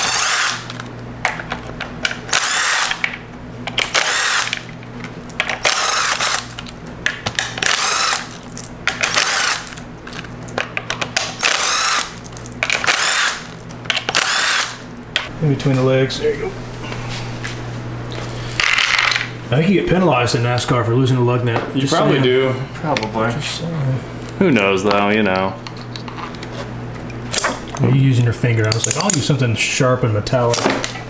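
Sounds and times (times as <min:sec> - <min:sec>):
impact driver bursts: 0:00.0 - 0:00.7, 0:02.3 - 0:03.0, 0:03.8 - 0:04.6, 0:05.6 - 0:06.5, 0:07.5 - 0:08.3, 0:08.9 - 0:09.7, 0:11.3 - 0:12.2, 0:12.8 - 0:13.5, 0:14.1 - 0:14.8.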